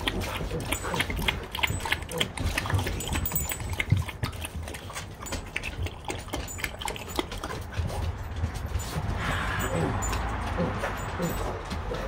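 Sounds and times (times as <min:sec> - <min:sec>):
dog noises: 0:00.0 - 0:12.0
knocks and scuffs: 0:07.4 - 0:12.0.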